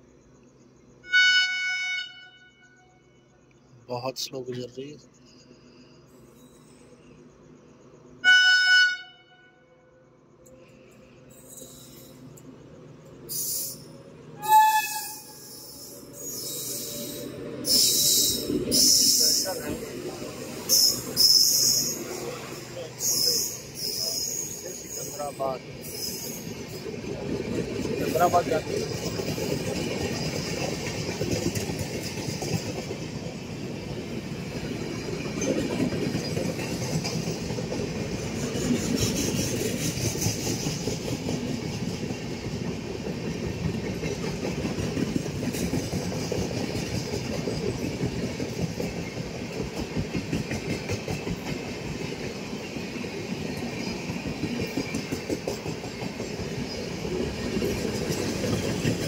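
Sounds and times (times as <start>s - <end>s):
train wheels rumbling on rails: 10.1s - 59.0s
train clatter: 16.1s - 59.0s.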